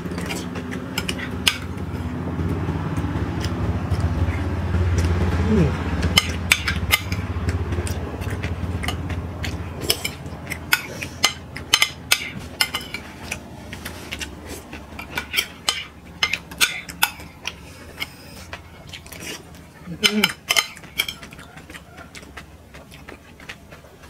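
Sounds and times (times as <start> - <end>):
spoons clinking on plates: 9.8 - 13.4, 20.0 - 21.5.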